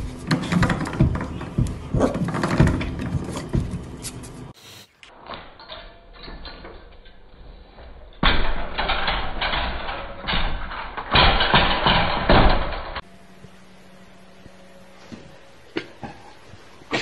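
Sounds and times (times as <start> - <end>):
gate crashing to the floor: 0.3 - 3.8, 8.2 - 13.0
metal baby gate rattling: 8.2 - 13.0.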